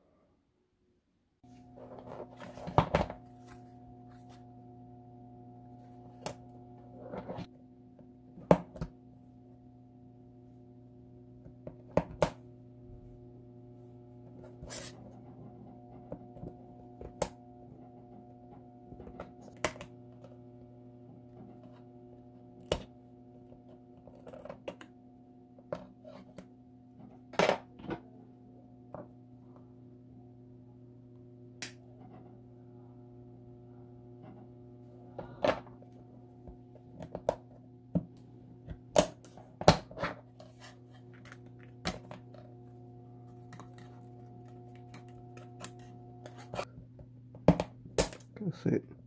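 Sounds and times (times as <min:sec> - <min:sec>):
steady low hum: 0:01.4 - 0:49.0.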